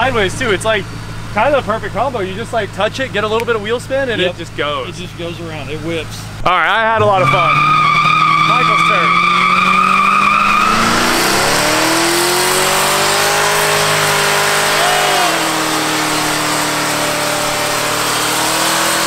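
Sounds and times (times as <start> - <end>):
car engine revving: 0.0 - 19.0
spinning tyres rushing: 0.0 - 19.0
tyre squeal: 7.0 - 19.0.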